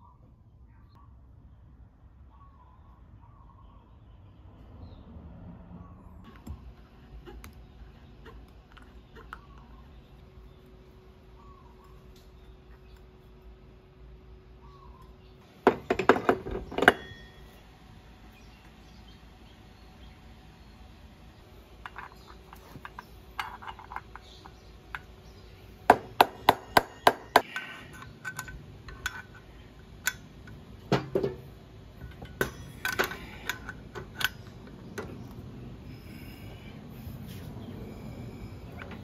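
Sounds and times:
metal tools clinking and tapping: 0:15.8 - 0:17.6, 0:21.8 - 0:25.1, 0:26.6 - 0:31.4, 0:32.0 - 0:35.2.

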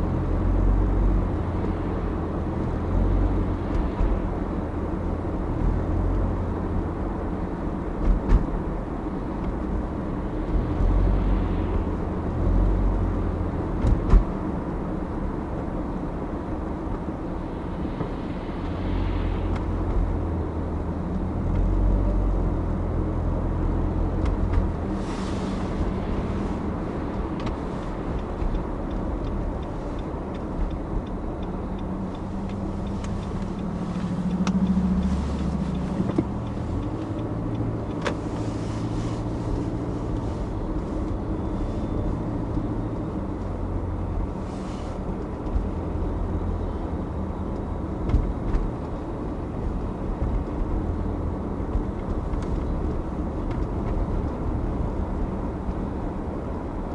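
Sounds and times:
car engine and tyre rumble: 0:00.0 - 0:56.9.

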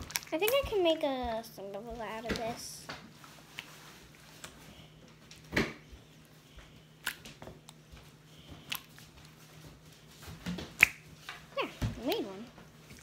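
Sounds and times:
slime squelching: 0:00.0 - 0:04.7, 0:06.2 - 0:09.7
faint steady hum: 0:00.0 - 0:13.0.

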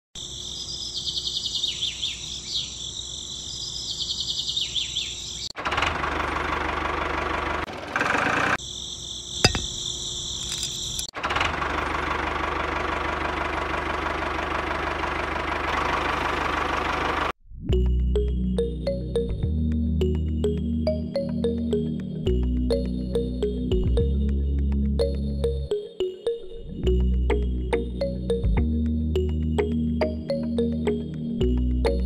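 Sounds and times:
crickets chirring: 0:00.2 - 0:04.4, 0:08.6 - 0:11.1
engine running with low hum: 0:05.6 - 0:08.6, 0:09.5 - 0:17.3, 0:26.8 - 0:32.0.

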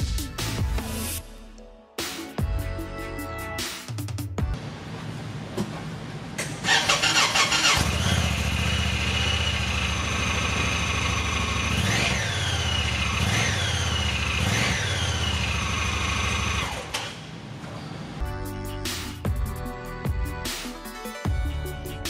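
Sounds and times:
engine cranking and idling: 0:06.4 - 0:17.2
engine revving: 0:06.6 - 0:17.2.

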